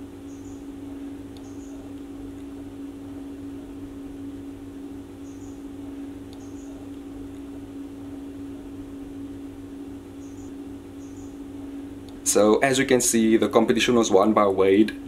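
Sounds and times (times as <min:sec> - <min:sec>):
steady machine hum: 0:00.0 - 0:15.0
faint high chirps: 0:00.3 - 0:00.7, 0:01.4 - 0:01.9, 0:05.2 - 0:05.6, 0:06.4 - 0:06.8, 0:10.2 - 0:11.4.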